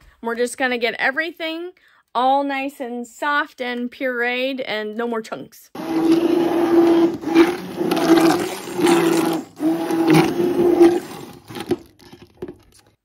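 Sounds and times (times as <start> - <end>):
immersion blender motor hum: 5.8 - 12.5.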